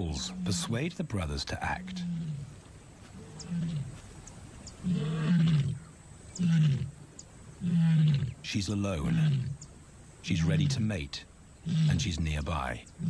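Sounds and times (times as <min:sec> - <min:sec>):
lioness roar-grunts: 0:04.8 - 0:07.0.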